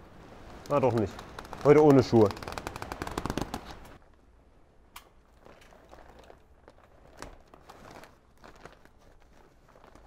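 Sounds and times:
plastic membrane crinkling: 0:05.4 - 0:10.0.

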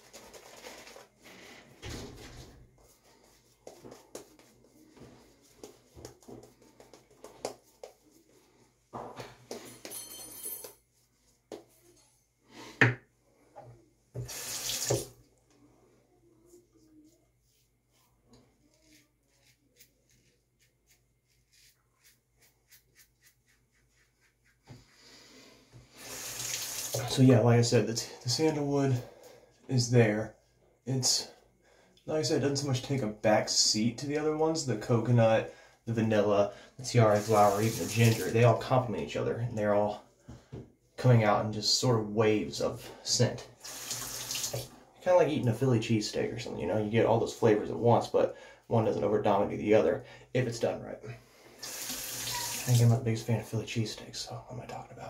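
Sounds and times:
sink tap running: 0:14.2 - 0:15.1, 0:26.2 - 0:27.0, 0:37.2 - 0:38.3, 0:43.6 - 0:44.7, 0:51.6 - 0:52.8.

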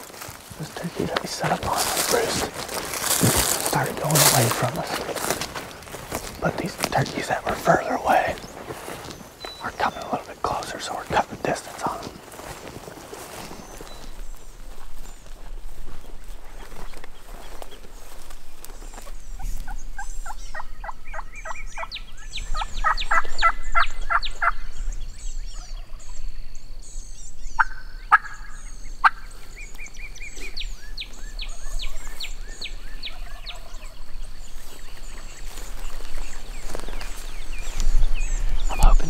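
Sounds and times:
turkeys gobbling: 0:00.2 - 0:12.1, 0:27.6 - 0:29.3.

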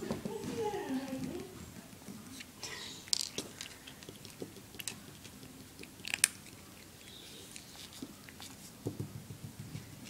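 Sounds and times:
kitten crunching dry kibble: 0:01.9 - 0:08.8.

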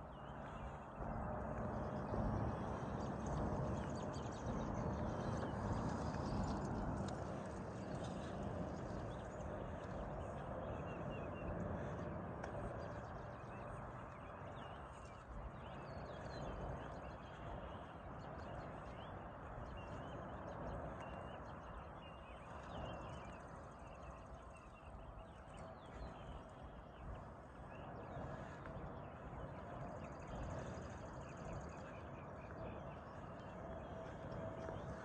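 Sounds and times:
small birds chirping: 0:00.0 - 0:35.0
footsteps on paved path: 0:05.2 - 0:21.6, 0:25.8 - 0:35.0.

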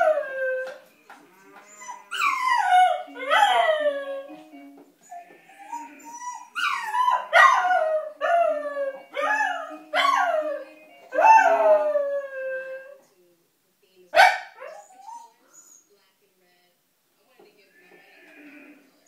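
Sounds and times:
puppy howling: 0:00.0 - 0:00.8, 0:01.6 - 0:04.3, 0:05.1 - 0:13.0
faint electronic toy tune: 0:08.6 - 0:11.3.

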